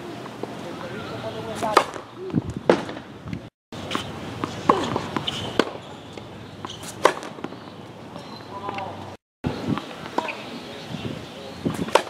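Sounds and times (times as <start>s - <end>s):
racket hitting ball: 1.5s - 2.0s, 2.7s - 3.1s, 3.8s - 7.6s, 11.7s - 12.0s.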